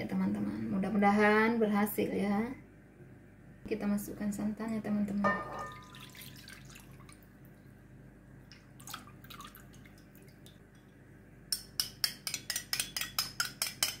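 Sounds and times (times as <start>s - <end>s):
liquid pouring into glass bowl: 5.3s - 7.7s, 8.5s - 10.6s.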